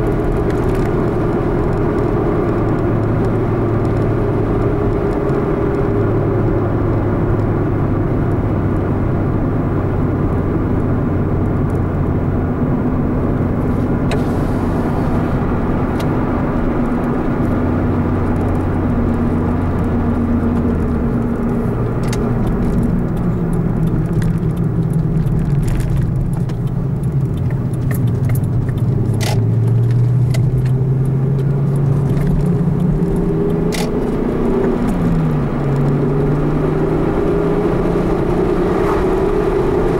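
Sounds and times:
car engine and tyre noise: 0.0 - 39.9.

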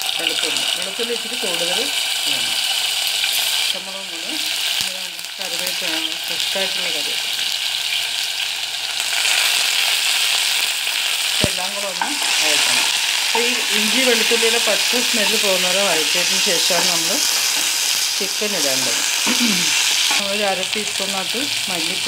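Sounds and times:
spices sizzling in hot oil: 0.0 - 22.0
spoon stirring a pan: 12.0 - 18.2.

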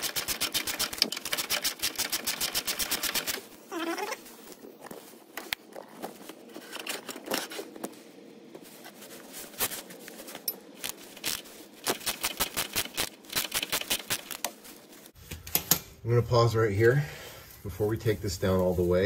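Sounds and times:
metal tools clinking and scraping: 10.2 - 10.8.

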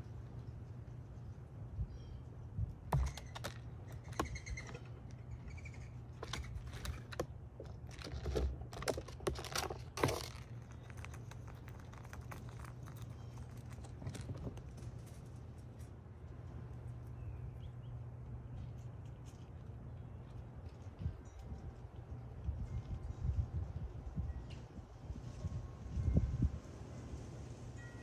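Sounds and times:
faint bird chirps: 0.0 - 3.4
squirrel scrabbling on feeder tray: 2.9 - 15.9.

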